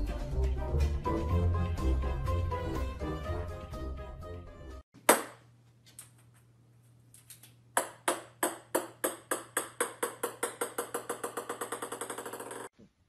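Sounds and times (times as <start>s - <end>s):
small ball bouncing on wooden floor: 7.8s - 12.7s.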